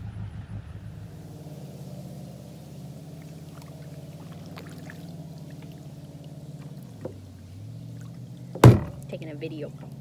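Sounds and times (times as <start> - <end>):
low hum: 0.0 - 10.0
paddle drips and splashes: 2.2 - 9.2.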